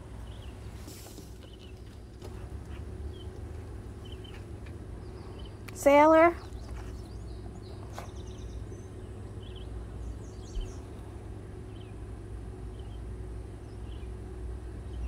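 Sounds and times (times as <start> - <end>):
faint bird chirps: 5.0 - 10.9.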